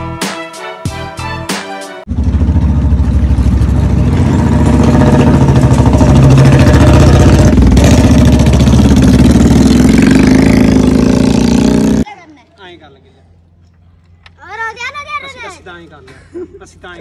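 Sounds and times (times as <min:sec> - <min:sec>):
motorcycle engine running: 0:02.1 - 0:12.0.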